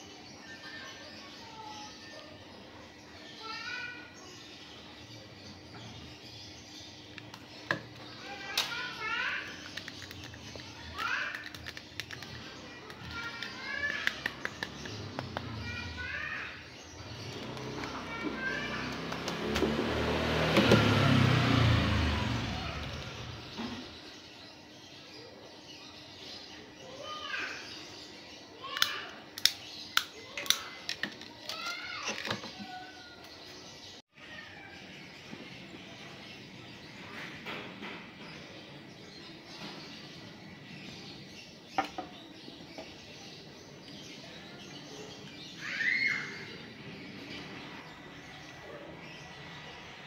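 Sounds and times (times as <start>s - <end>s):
bird chirp: 0.0s - 50.0s
vehicle engine passing by: 17.0s - 24.0s
sharp clicks: 28.8s - 31.0s.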